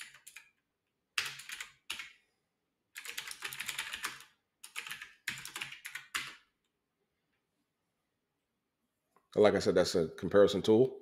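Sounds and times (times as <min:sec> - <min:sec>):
typing on computer keyboard: 0:00.0 - 0:00.6, 0:01.2 - 0:02.2, 0:02.9 - 0:06.5.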